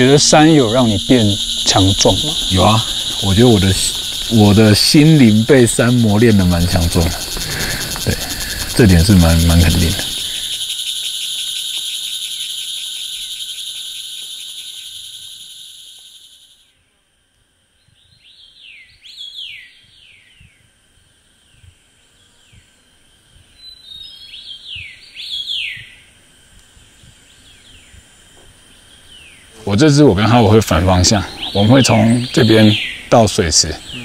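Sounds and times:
birds whistling falling notes: 0.0s - 15.8s, 23.5s - 26.0s, 31.0s - 34.0s
high-pitched insect chorus: 0.0s - 34.0s.

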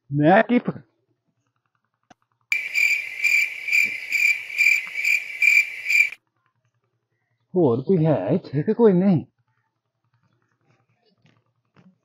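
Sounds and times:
cricket chirping: 2.5s - 6.2s.

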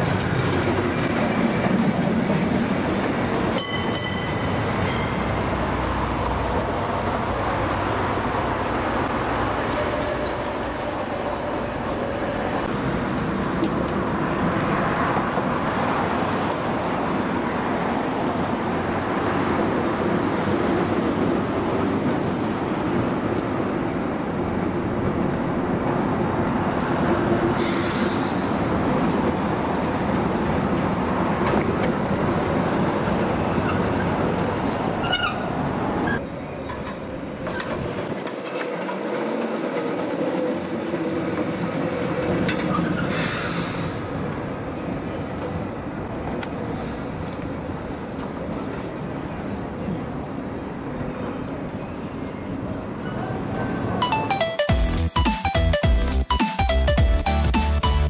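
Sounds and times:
tram track noise: 0.0s - 58.0s
high wheel squeal: 9.6s - 12.7s, 35.0s - 36.2s.

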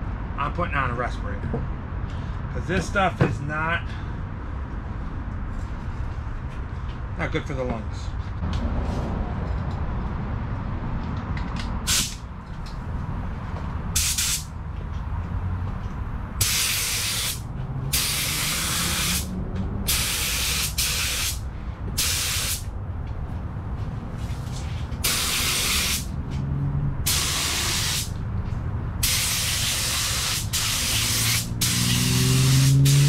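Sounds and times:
steady low rumble: 7.8s - 30.4s
spray gun hissing bursts: 14.0s - 14.5s, 16.4s - 19.3s, 19.9s - 21.4s, 22.0s - 22.7s, 25.0s - 26.1s, 27.1s - 28.1s, 29.0s - 33.0s.

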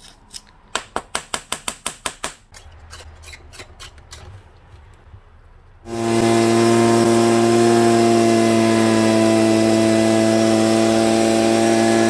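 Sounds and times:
air rushing from blower tube: 5.8s - 12.0s
leaf blower engine running: 5.9s - 12.0s.

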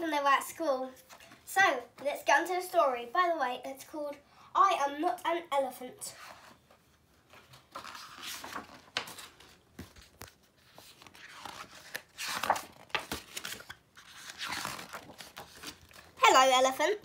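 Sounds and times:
book pages turning: 6.2s - 16.2s.

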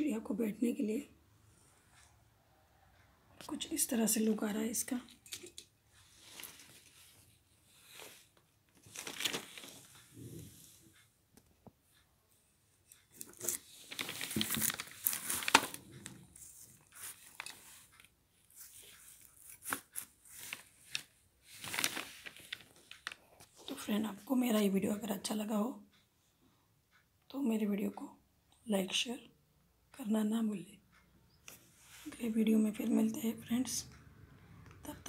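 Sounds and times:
rustling and crinkling: 5.2s - 12.0s, 12.8s - 24.3s.

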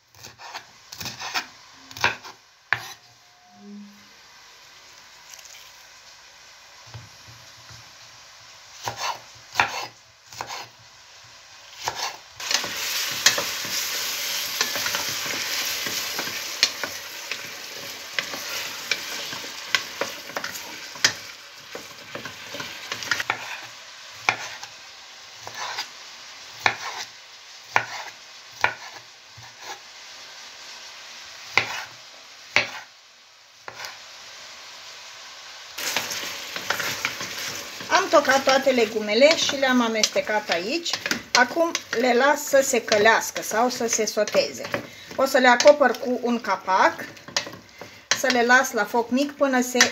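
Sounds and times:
vegetables sizzling in hot oil: 0.0s - 3.1s, 4.1s - 49.9s
wooden spatula stirring: 11.9s - 23.6s, 35.8s - 48.7s.

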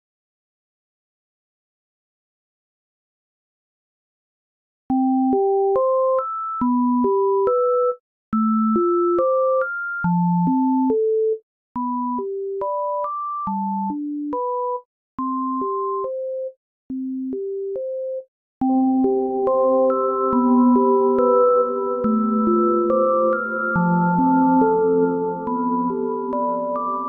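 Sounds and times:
synthesizer melody with sine tones: 18.6s - 27.0s.

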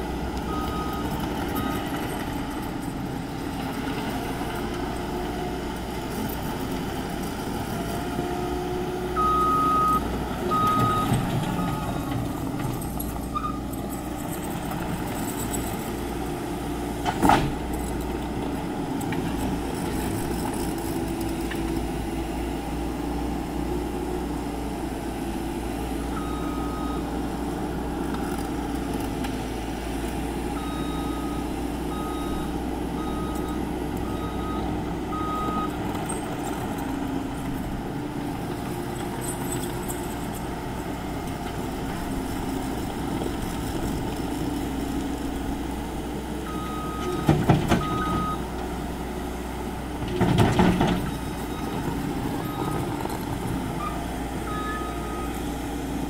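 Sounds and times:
diesel engine running: 0.0s - 56.0s
reversing alarm beeping: 9.2s - 13.6s, 30.6s - 36.2s, 46.5s - 48.4s, 53.8s - 55.5s.

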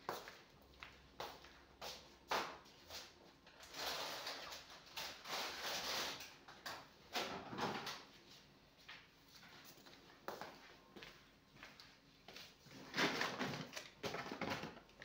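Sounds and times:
groceries rustling: 12.7s - 15.0s.

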